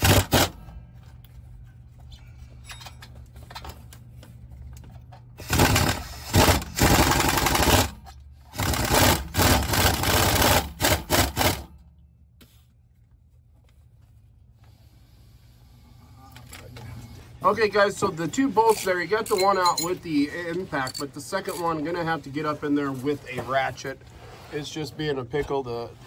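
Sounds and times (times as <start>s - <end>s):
impact wrench hammering: 0.0s - 0.7s, 5.4s - 11.9s.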